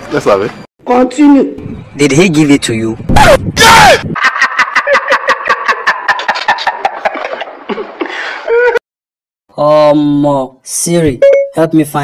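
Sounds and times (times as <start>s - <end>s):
person laughing: 4.2s - 8.8s.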